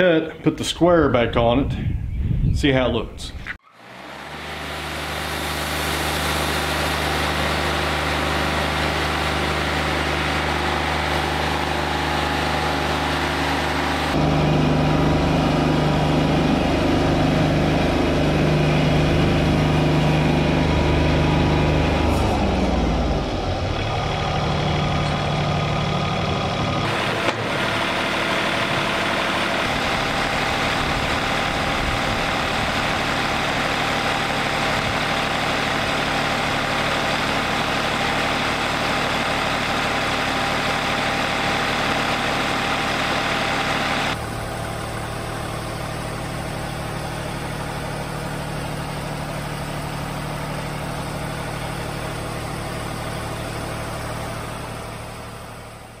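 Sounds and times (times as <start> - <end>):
engine humming: 1.6 - 56.0
band sawmill cutting log: 3.6 - 56.0.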